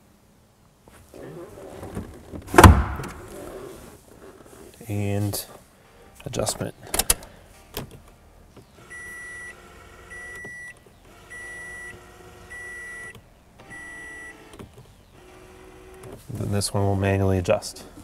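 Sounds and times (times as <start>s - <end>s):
mirror adjustment motor whirring: 8.8s - 16.1s.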